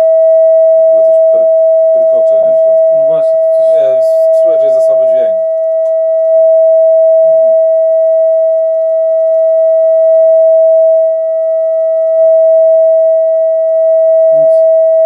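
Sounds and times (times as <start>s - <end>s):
loud steady sine tone: 0.0s - 15.0s.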